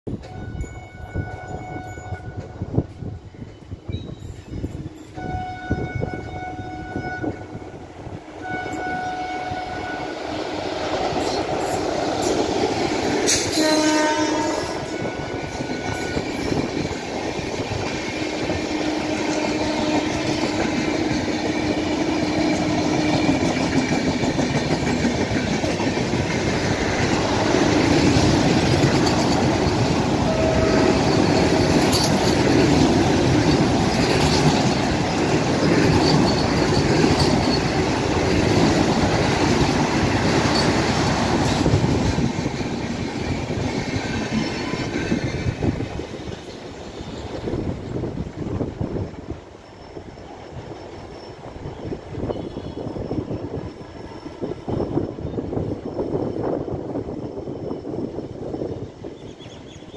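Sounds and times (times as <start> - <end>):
train rumbling past: 0.1 - 59.9
wheels clacking on rails: 0.1 - 59.9
train horn: 0.3 - 2.7, 5.1 - 10.5, 13.3 - 16.5, 18.2 - 23.3, 30.1 - 32.1.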